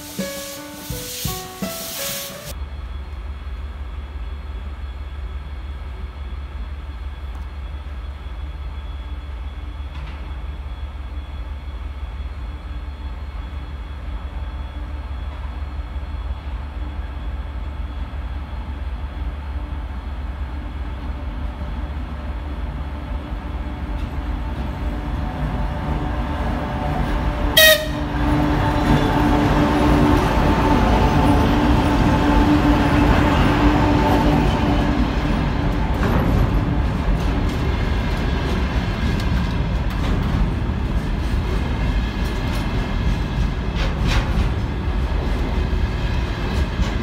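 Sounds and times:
diesel locomotive drone: 0.0 - 47.0
locomotive horn toot: 27.4 - 29.2.

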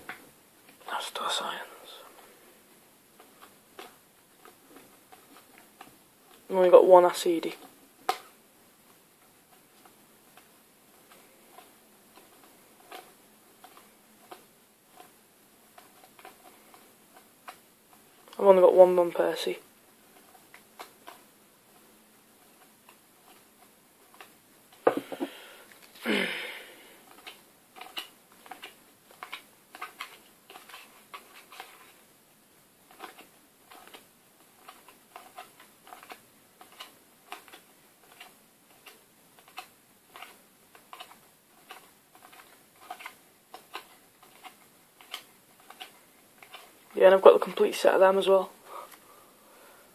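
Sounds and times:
cards rustling: 3.2 - 6.5, 9.2 - 32.0, 32.8 - 49.1
cards flicking and snapping: 24.1 - 32.0, 32.9 - 47.0.

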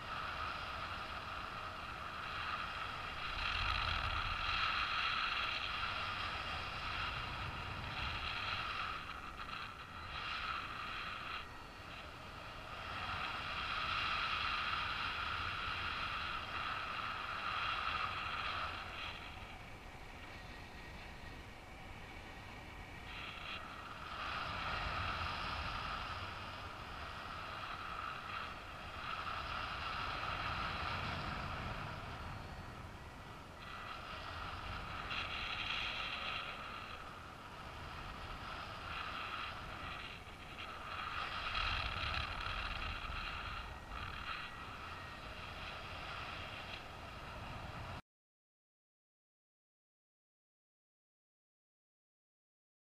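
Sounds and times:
wind rushing past camera: 0.0 - 48.0.

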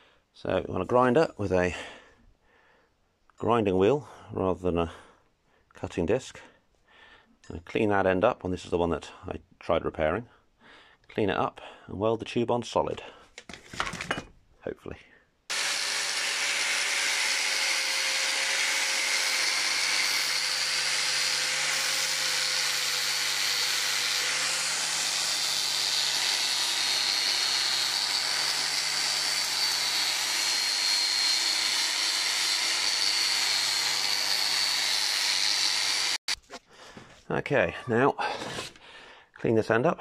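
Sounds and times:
angle grinder grinding steel: 15.5 - 36.4
high-pitched grinder whine: 15.5 - 36.4.

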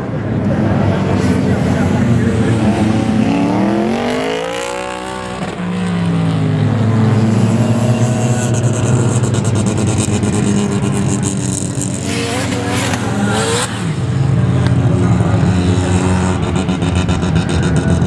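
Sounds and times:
racing car engines accelerating: 0.0 - 18.0.

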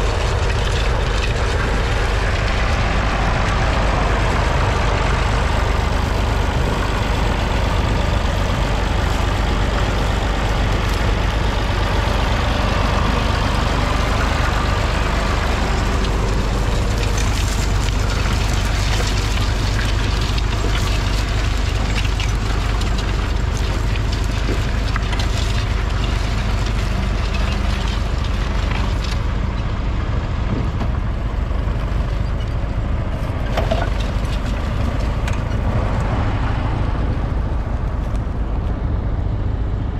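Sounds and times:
plough crackling through soil: 0.0 - 29.4, 31.6 - 36.2
diesel tractor engine under load: 0.0 - 39.9.

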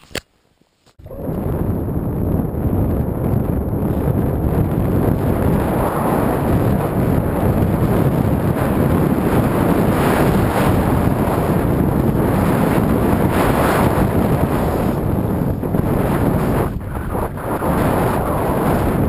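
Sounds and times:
wind buffeting microphone: 1.0 - 19.0.

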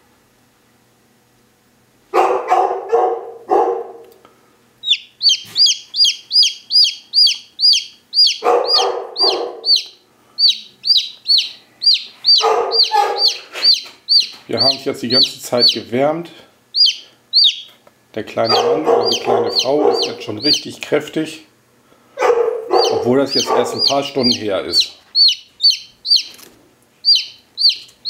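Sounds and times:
lower rougher chick calls: 4.8 - 15.9, 16.7 - 17.7, 18.4 - 20.7, 22.2 - 26.4, 27.0 - 28.0
chick peeping: 4.8 - 16.0, 16.7 - 17.8, 18.4 - 20.9, 22.2 - 28.0.

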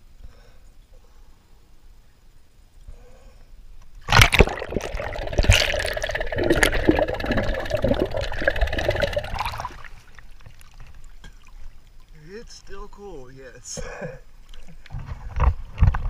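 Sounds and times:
underwater rushing and bubbling: 4.0 - 12.1
water splashing and gurgling: 4.0 - 12.3.

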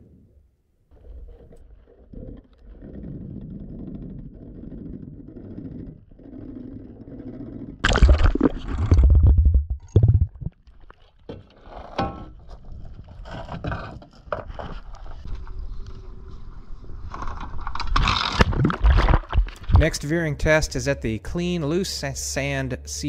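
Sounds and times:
underwater rumble: 0.0 - 11.0, 14.8 - 20.6
water splashing: 7.8 - 11.3.

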